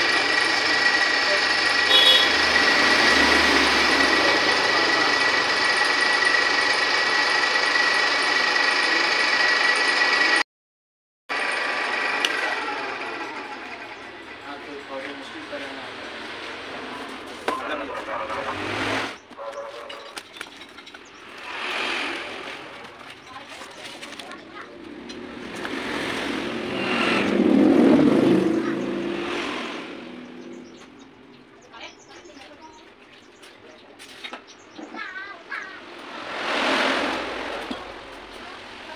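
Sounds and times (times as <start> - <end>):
drill press whining: 0.0 - 10.4, 11.3 - 14.4
engine passing by: 0.0 - 10.4, 11.6 - 19.3, 21.1 - 32.4, 35.1 - 38.9.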